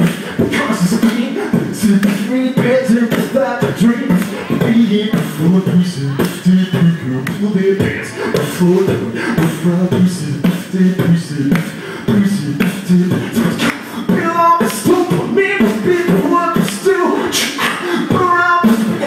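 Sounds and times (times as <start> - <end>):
beatboxing through microphone: 0.0 - 19.0.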